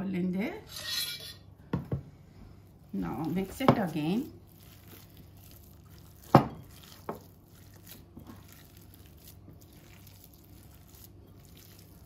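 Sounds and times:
hands mixing mince in bowl: 2.9s - 12.0s.

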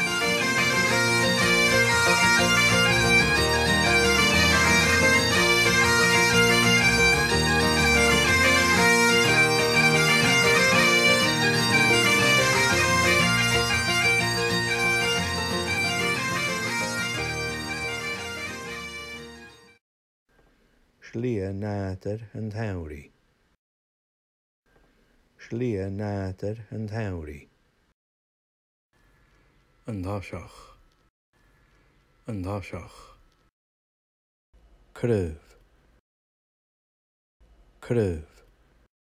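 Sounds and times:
bagpipe music: 0.0s - 19.8s.

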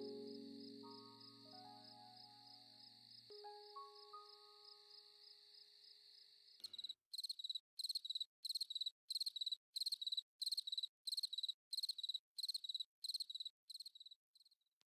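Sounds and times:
soft music note: 0.0s - 2.7s, 3.3s - 4.7s
cricket chorus trill: 0.0s - 14.1s
cricket chirping: 0.0s - 14.6s.

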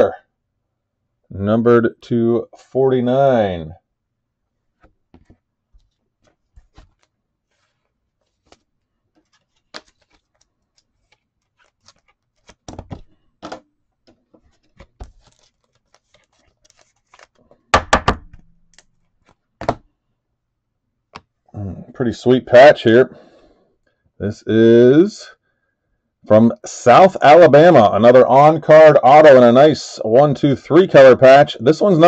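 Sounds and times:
cards tapping on a tabletop: 4.8s - 5.4s
sharp knocks: 17.8s - 18.4s.

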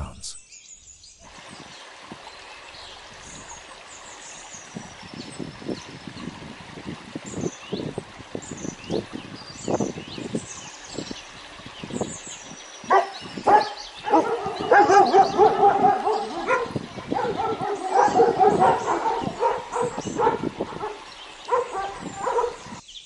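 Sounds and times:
birds chirping faintly: 0.0s - 23.0s
dogs barking and yipping: 12.8s - 22.8s.

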